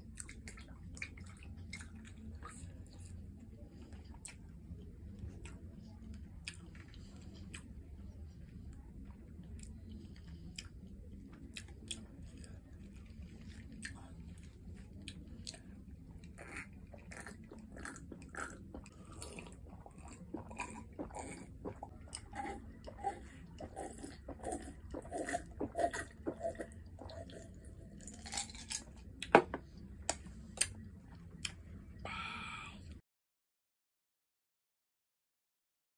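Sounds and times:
gulping and swallowing: 16.2 - 28.4.

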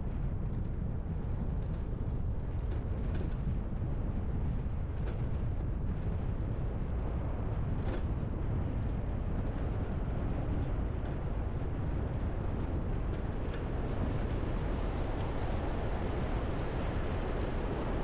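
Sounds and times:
wind over microphone: 0.0 - 18.0
wheels rolling on pavement: 0.5 - 18.0.

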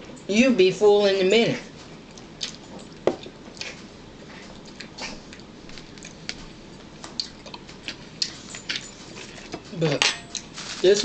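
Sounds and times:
chewing and mouth smacks: 2.1 - 9.5.

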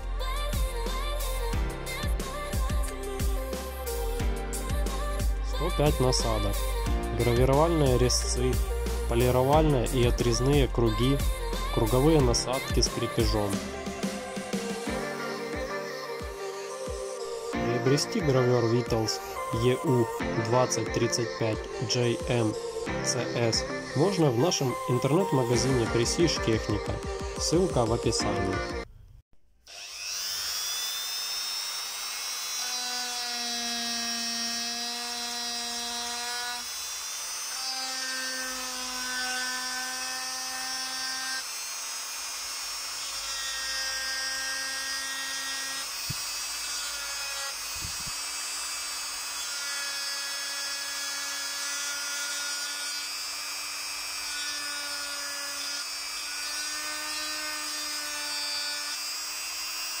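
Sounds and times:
rotary engraver whining: 29.7 - 60.0.

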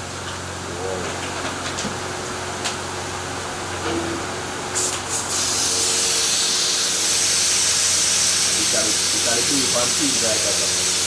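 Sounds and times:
loud hiss: 4.8 - 11.0.

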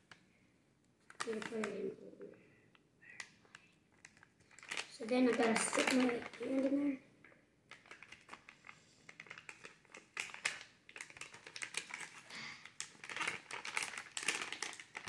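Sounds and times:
plastic bag crinkling: 1.0 - 2.0, 3.2 - 7.0, 7.7 - 15.0.

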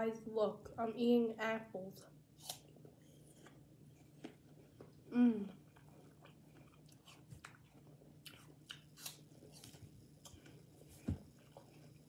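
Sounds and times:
chewing apple slices: 2.4 - 12.0.

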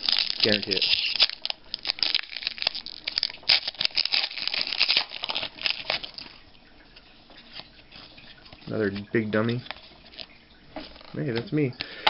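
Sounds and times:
foil wrapper tearing and crinkling: 0.0 - 6.4.

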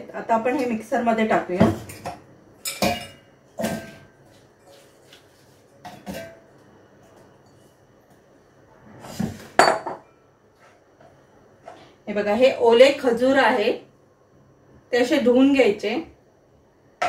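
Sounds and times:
glass bowl set down on counter: 9.6 - 10.1.

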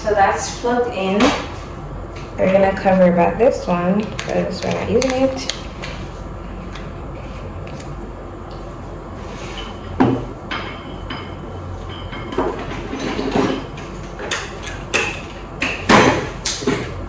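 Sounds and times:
objects knocking and clattering: 9.6 - 17.0.

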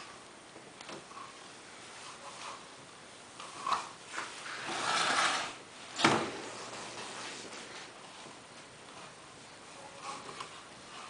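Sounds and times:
table scraping: 3.4 - 7.9.

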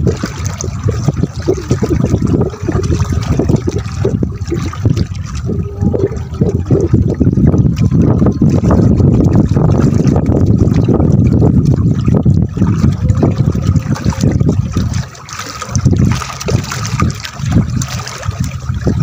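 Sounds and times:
water splashing against boat hull: 0.0 - 19.0.

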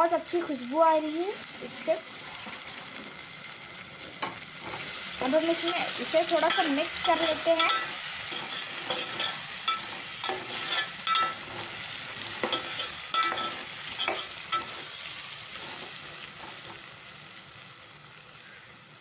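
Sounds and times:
hot oil sizzling: 0.0 - 19.0
metal spoon scraping a pot: 5.6 - 16.8.

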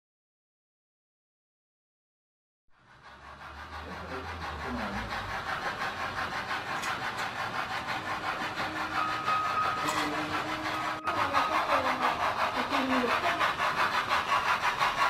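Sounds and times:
steam locomotive chuffing: 2.7 - 15.0
thin steady high tone: 8.4 - 13.4.

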